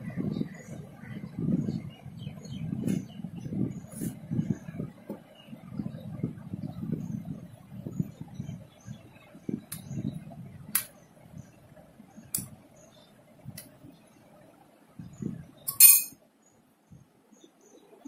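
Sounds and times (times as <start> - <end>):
spoon clinking against glass bowl: 15.7 - 16.2.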